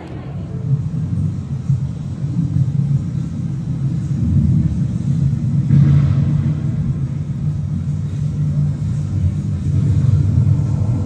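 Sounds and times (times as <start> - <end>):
vehicle passing: 0.0 - 1.0
city traffic rumble: 0.0 - 11.0.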